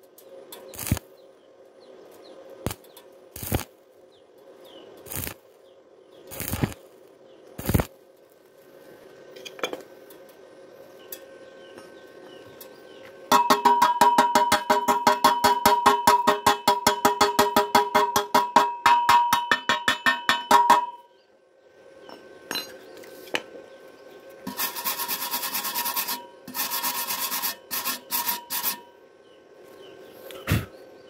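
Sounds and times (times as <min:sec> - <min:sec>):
hammer striking metal: 0:13.3 - 0:21.1
wire brush scraping metal: 0:24.4 - 0:28.9.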